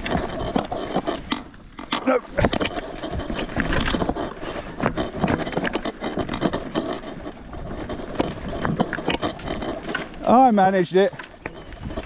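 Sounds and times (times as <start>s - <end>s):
bike rattling over rocky trail: 0.0s - 12.0s.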